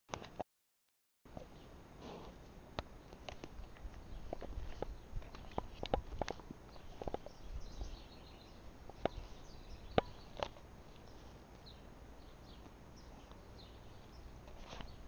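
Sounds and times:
horse grazing clicks and rustles: 2.0s - 11.8s
faint bird chirps: 6.7s - 15.0s.

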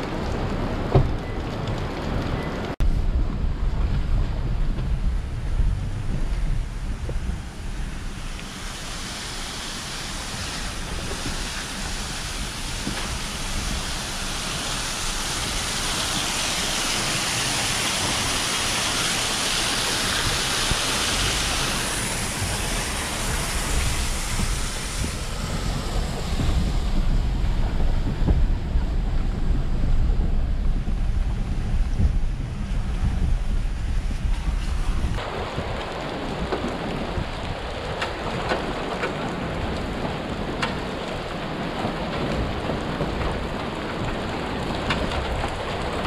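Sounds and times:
truck low rumble: 0.0s - 46.0s
wind buffeting microphone: 0.0s - 46.0s
waterfall rushing: 7.7s - 29.5s.

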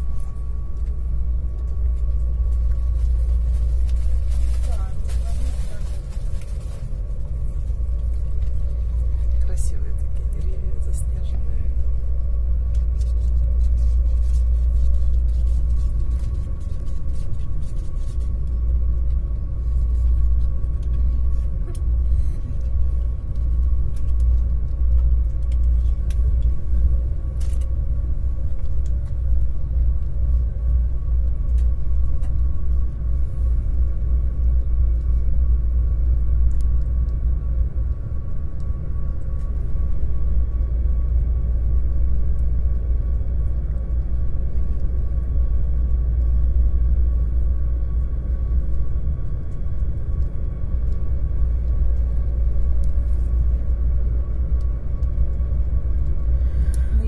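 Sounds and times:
faint high hum: 0.0s - 57.0s
train rumbling on rails: 0.0s - 57.0s.

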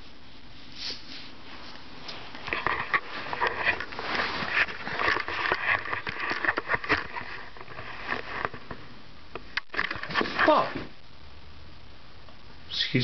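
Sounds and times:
hands rustling camera: 0.9s - 10.9s.

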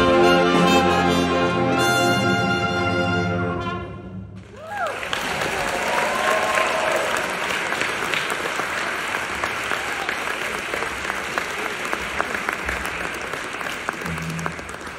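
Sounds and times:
audience applauding: 4.5s - 14.9s.

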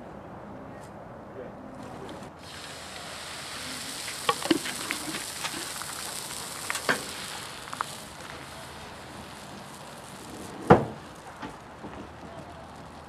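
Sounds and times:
sharp pops and crackles: 1.8s - 13.0s
batter sizzling on griddle: 2.0s - 13.0s.

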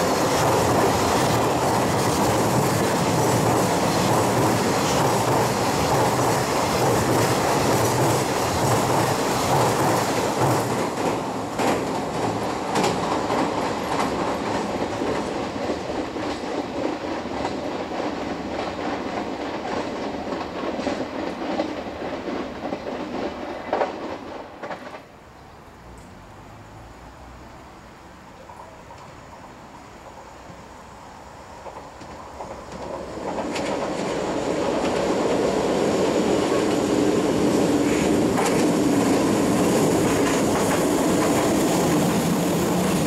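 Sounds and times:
freight train rumbling over bridge: 0.0s - 43.0s.

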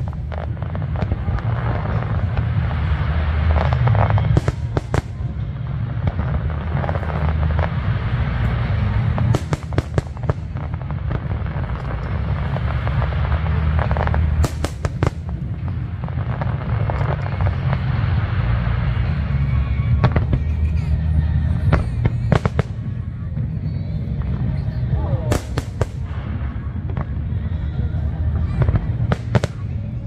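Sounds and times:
fireworks crackling bangs: 0.0s - 30.0s
low rumble: 0.0s - 30.0s
music: 16.1s - 30.0s.

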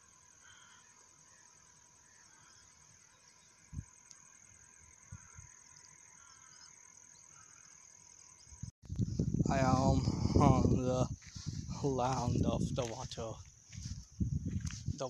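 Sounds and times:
faint chirps: 0.0s - 8.7s
faint high insect trill: 0.0s - 15.0s.

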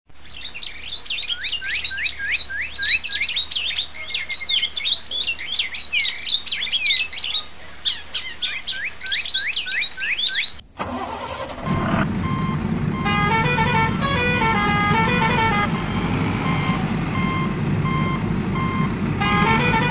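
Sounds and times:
birds chirping: 0.2s - 19.9s
low engine-like rumble: 10.8s - 19.9s.

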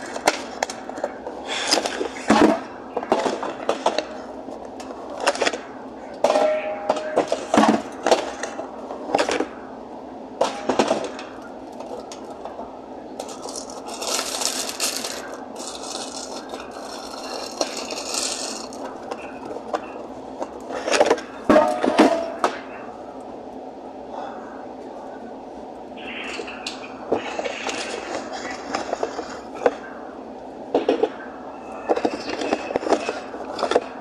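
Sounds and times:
cardboard rustling: 13.2s - 20.0s.

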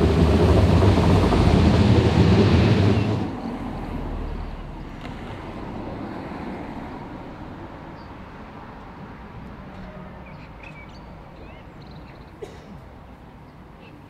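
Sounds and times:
distant steam locomotive rumble: 0.0s - 8.0s.

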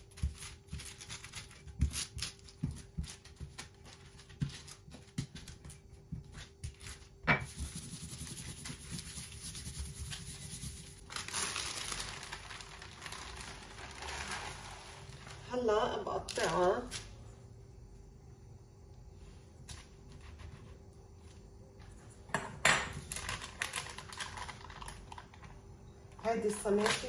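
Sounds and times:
baking paper rustling: 0.0s - 17.2s, 23.0s - 25.4s, 26.2s - 27.0s
paper sheet peeled off dough: 7.7s - 15.5s.

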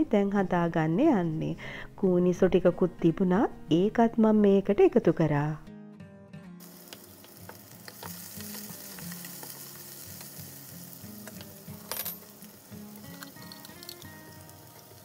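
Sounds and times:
onions sizzling in oil: 6.6s - 15.0s.

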